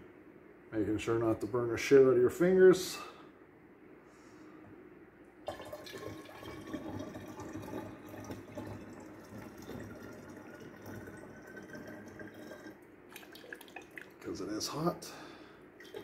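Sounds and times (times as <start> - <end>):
liquid pouring into a bottle: 5.5 - 14.3, 15.8 - 16.0.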